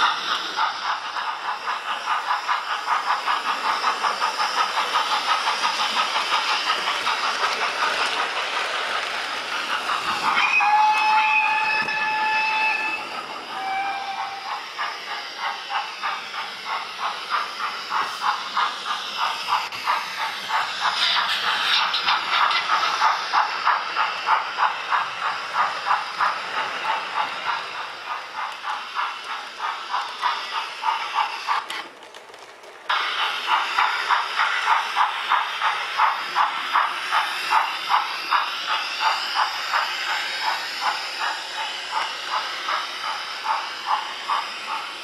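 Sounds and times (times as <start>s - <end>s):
steam locomotive chuffing with hiss: 0.0s - 45.0s
steam whistle from small speaker: 10.4s - 14.5s.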